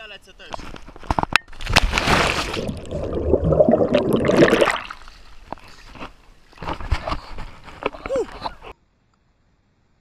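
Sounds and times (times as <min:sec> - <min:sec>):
water churning around camera: 0:01.5 - 0:07.9.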